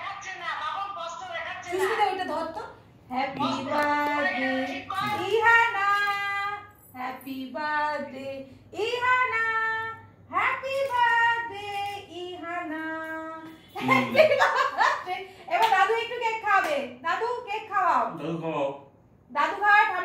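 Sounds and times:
high voice singing unaccompanied: 3.3s - 6.2s.

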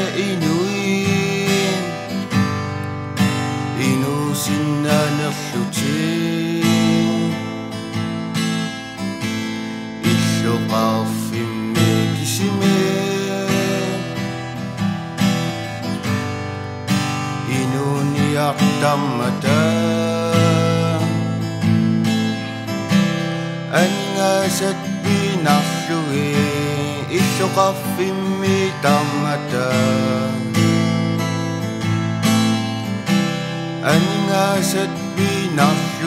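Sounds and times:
young man singing: 0.0s - 2.4s, 3.6s - 7.9s, 10.0s - 14.6s, 17.4s - 21.8s, 23.6s - 31.3s, 33.8s - 36.0s
acoustic guitar strumming: 0.0s - 36.0s.

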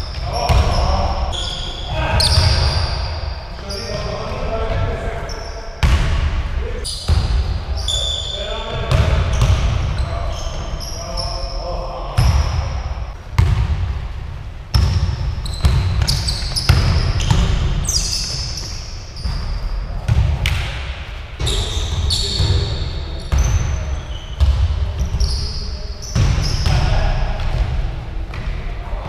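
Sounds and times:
sneaker squeaks: 0.0s - 4.1s, 5.2s - 5.9s, 6.8s - 11.6s, 14.7s - 20.5s, 21.4s - 26.9s
basketball bouncing on hardwood floor: 13.4s - 13.8s, 14.7s - 17.7s.

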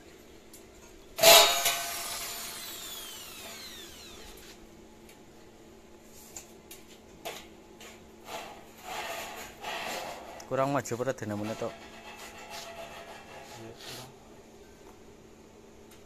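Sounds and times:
drill boring into sheet metal: 1.2s - 4.4s.

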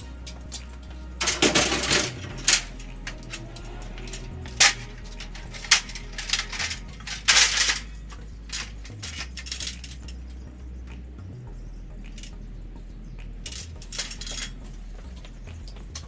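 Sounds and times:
metal tools clinking and rattling: 0.2s - 10.2s, 13.5s - 14.6s.

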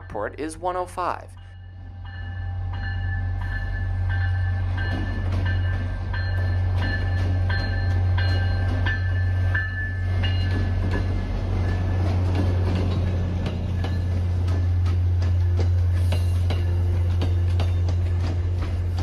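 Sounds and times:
locomotive bell ringing: 0.0s - 18.4s
locomotive engine droning: 1.4s - 19.0s
wheels knocking on rail: 4.2s - 19.0s.

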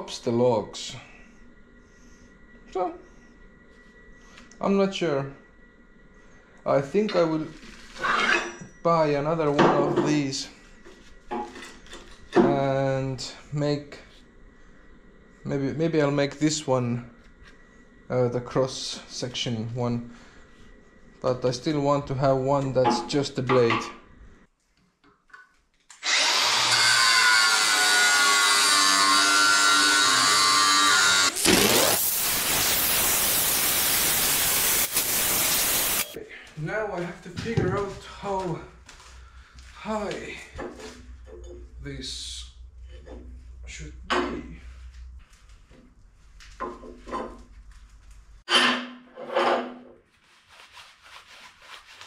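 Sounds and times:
angle grinder cutting steel: 25.9s - 36.2s.

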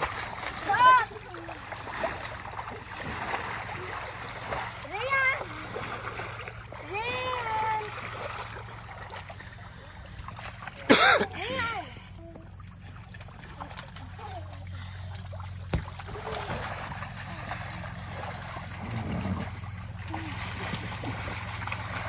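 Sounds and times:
water splashing: 0.0s - 22.0s
child shouting: 0.6s - 1.6s, 6.8s - 7.9s
children's voices: 0.6s - 1.9s, 4.8s - 5.9s, 6.8s - 8.1s, 10.8s - 12.5s.

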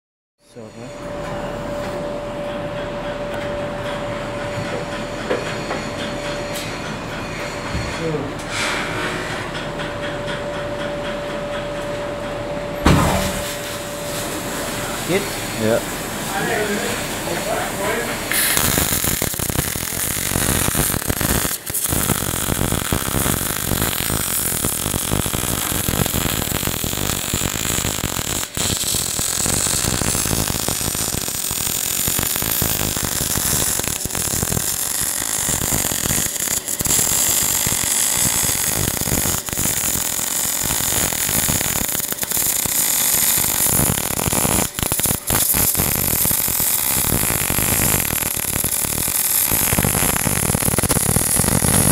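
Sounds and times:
welding arc crackle and hiss: 13.1s - 51.9s.

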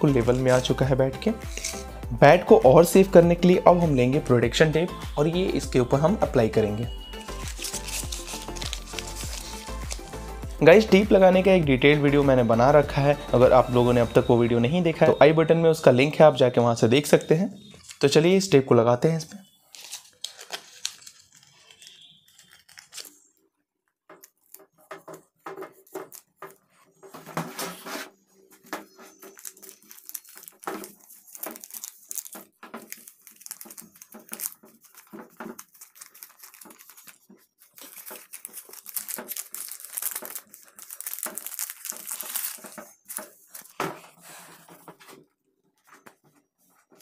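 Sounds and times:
backing sheet crinkling: 0.0s - 2.0s, 5.2s - 11.3s, 13.5s - 47.0s
cloth rubbing on tape: 1.4s - 2.0s, 7.1s - 10.4s, 25.7s - 28.5s.

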